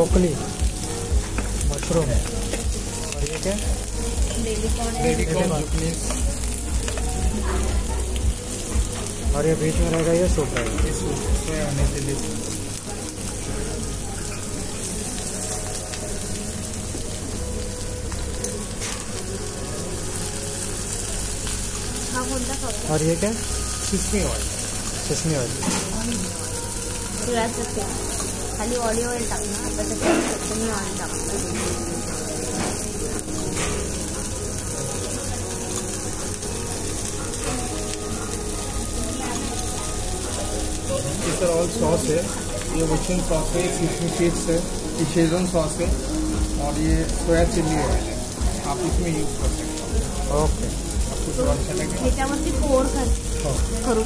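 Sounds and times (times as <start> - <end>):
broth boiling and sizzling: 0.0 - 54.0.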